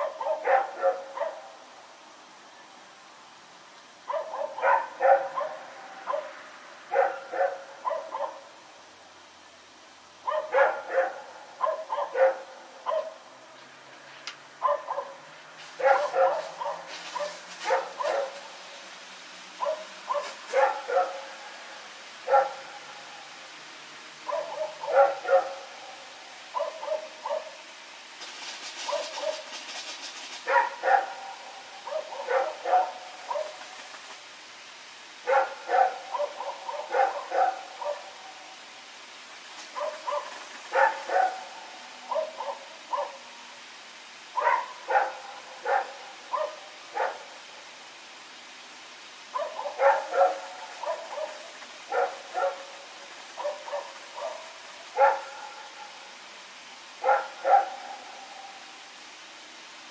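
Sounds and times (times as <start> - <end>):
dog barking: 0.0 - 1.5, 4.1 - 8.5, 10.2 - 13.2, 14.6 - 15.2, 15.8 - 18.4, 19.6 - 21.3, 22.2 - 22.8, 24.3 - 25.7, 26.5 - 27.6, 28.9 - 29.4, 30.5 - 33.6, 35.2 - 38.1, 39.8 - 41.5, 42.1 - 43.2, 44.4 - 47.3, 49.3 - 52.7, 53.4 - 55.7, 57.0 - 58.1.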